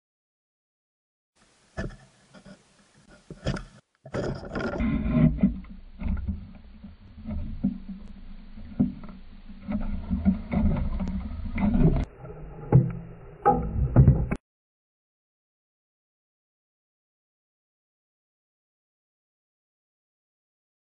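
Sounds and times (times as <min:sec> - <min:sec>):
underwater knocks and clicks: 0:03.2 - 0:14.4
low underwater rumble: 0:04.4 - 0:14.4.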